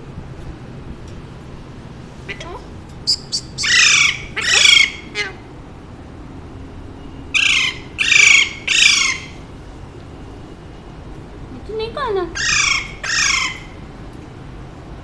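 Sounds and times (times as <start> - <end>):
parakeet squawking: 3.1 - 5.4, 7.4 - 9.4, 12.4 - 13.8.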